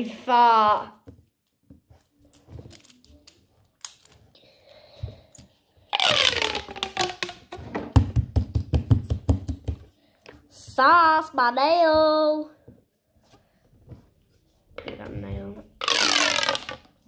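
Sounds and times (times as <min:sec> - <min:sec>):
fidget toys clicking and rustling: 0:15.8 - 0:17.0.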